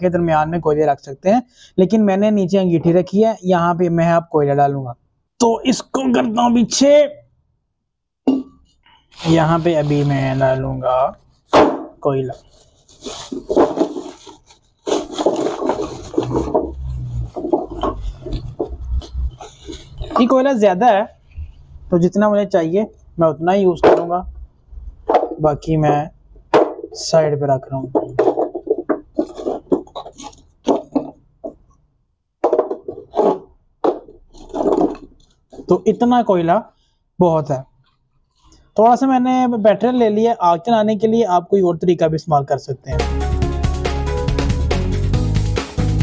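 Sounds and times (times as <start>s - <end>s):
plastic bag crinkling: 9.1s - 10.8s, 12.4s - 20.4s.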